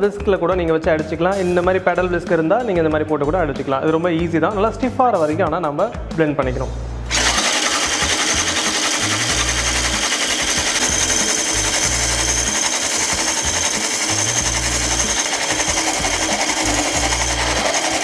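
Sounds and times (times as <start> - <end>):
electric whisk whining: 7.1 - 18.0.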